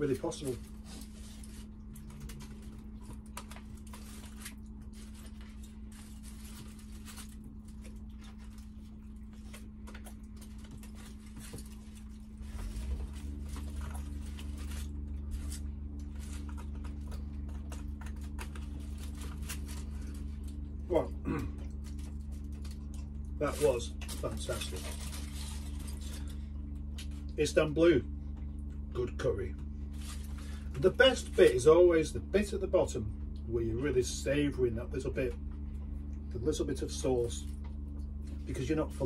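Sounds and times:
clicks and crinkles of foil trays: 0.0 - 20.6, 21.7 - 27.4
deeper steady hum: 0.0 - 39.0
steady low hum: 0.0 - 39.0.

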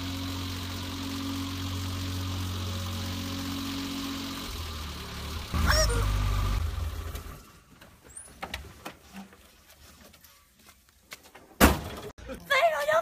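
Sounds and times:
small car engine rumbling: 0.0 - 8.3.

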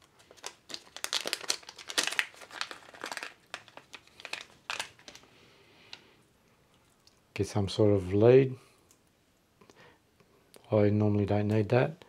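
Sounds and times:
plastic bag crinkling: 0.0 - 5.3.

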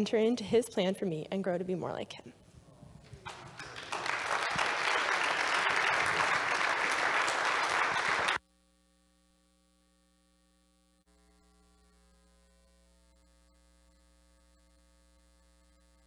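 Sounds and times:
congregation applauding: 3.1 - 8.4.

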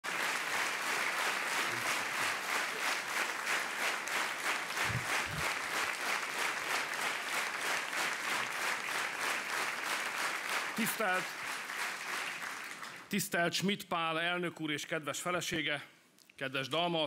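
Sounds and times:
audience clapping in rhythm: 0.0 - 13.4.

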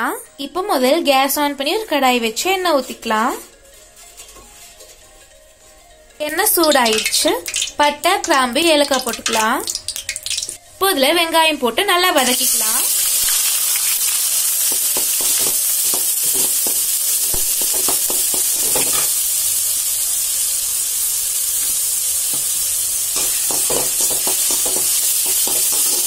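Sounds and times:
spatula stirring and scraping: 2.8 - 6.9
onions sizzling in hot oil: 6.4 - 11.2, 12.1 - 26.0.

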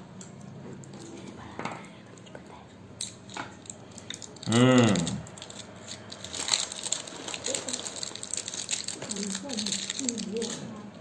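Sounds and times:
poker chips clicking: 3.0 - 10.6
plastic wrap crinkling: 3.2 - 10.8.

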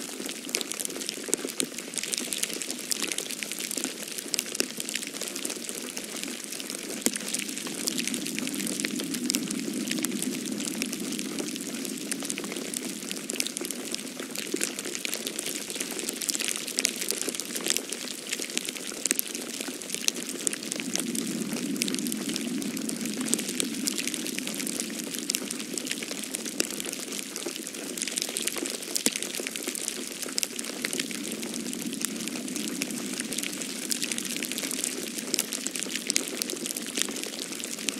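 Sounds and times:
snow pattering on leaves: 0.1 - 37.9
soft low rush: 6.2 - 14.4, 19.8 - 27.4, 30.0 - 36.2.

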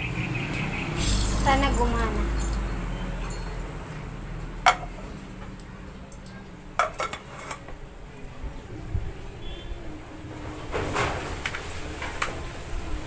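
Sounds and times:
metal coffee grinder clinking: 1.0 - 2.7.

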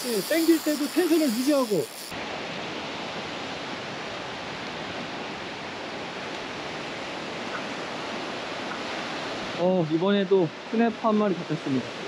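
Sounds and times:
small waves breaking on beach: 0.0 - 12.0.

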